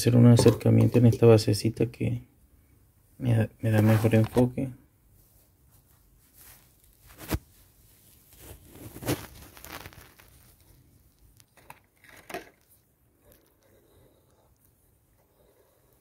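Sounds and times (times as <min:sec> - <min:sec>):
rustling and crinkling: 0:05.2 - 0:15.2.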